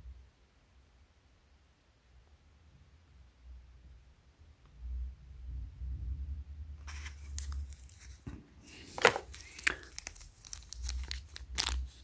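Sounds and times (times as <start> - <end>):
plastic bag crinkling: 6.9 - 12.0.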